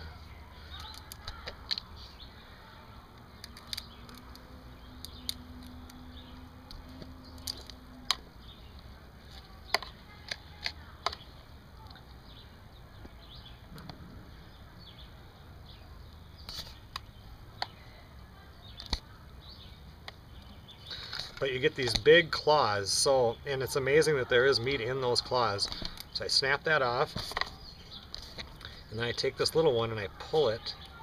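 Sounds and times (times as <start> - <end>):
shell cracking and peeling: 0.7 - 2.0, 3.1 - 8.3.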